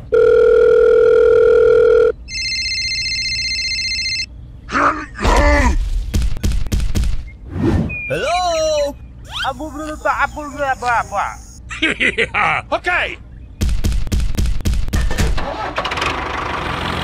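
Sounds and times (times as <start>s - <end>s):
electronic ringtone: 0.2s - 4.3s
cartoon voice cry: 8.7s - 11.6s.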